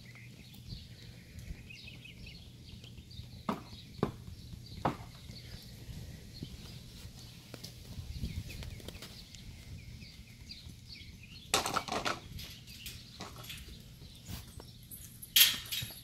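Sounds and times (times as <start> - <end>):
small birds chirping: 0.0 - 16.0
sharp knocks and clatter: 11.5 - 12.6.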